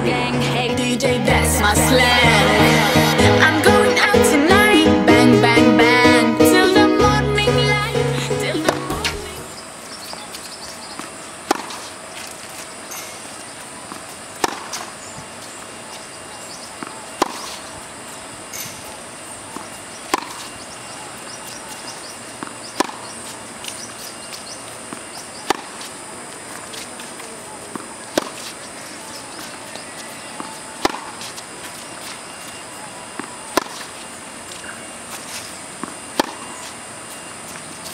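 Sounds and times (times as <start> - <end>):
tennis racket hitting ball: 11.0 - 13.1, 13.9 - 15.0, 16.8 - 17.7, 19.5 - 20.6, 21.2 - 24.2, 24.9 - 25.9, 26.5 - 32.2, 33.2 - 34.0, 35.1 - 36.7.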